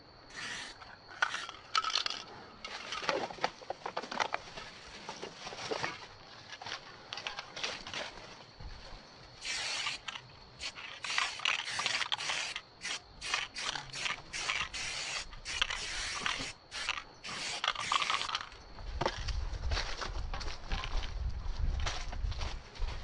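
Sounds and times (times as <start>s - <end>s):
spray paint can hissing: 0.3s - 2.1s, 9.4s - 18.6s.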